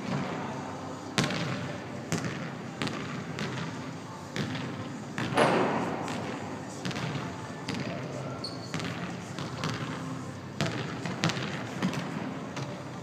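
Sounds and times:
basketballs bouncing on wooden floor: 1.2 - 3.8, 4.4 - 8.0, 8.7 - 10.0, 10.6 - 12.8.

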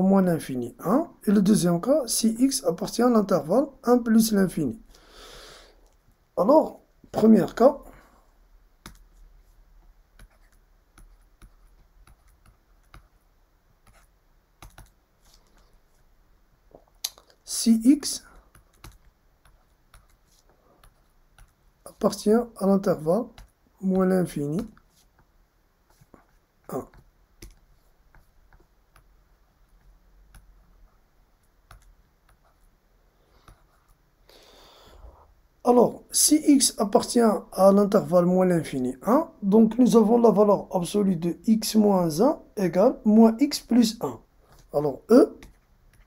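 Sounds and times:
stylus tapping on pen tablet: 8.8 - 9.2, 9.8 - 15.4, 18.3 - 22.2, 25.9 - 30.6, 45.4 - 46.0.

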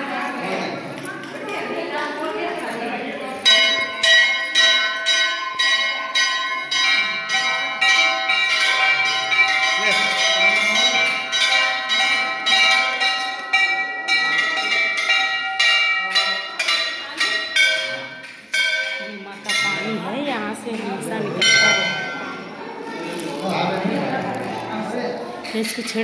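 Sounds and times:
temple bells ringing rapidly: 3.3 - 22.8.

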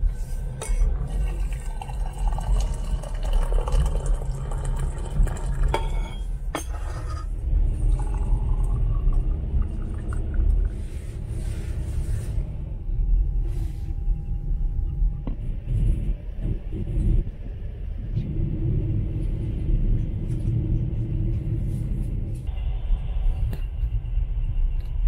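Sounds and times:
low rumble of moving train: 0.0 - 25.0
tea pouring into a glass: 0.8 - 6.2, 7.7 - 10.8
hot water running into a mug: 1.0 - 5.9.

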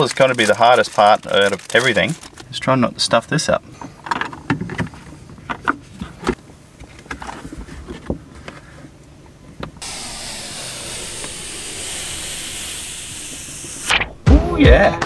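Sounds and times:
steady hiss: 9.8 - 14.2.

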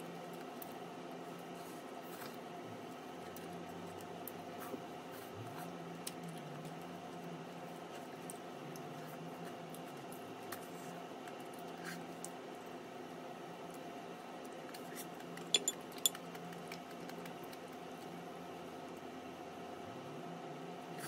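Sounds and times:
room hum: 0.0 - 21.0
chopsticks clicking on bowl: 15.5 - 16.2.

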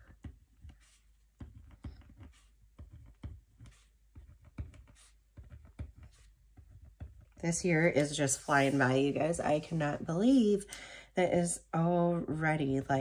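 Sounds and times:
pen tapping and clicking: 0.0 - 7.4
pen scratching on paper: 0.1 - 9.7.

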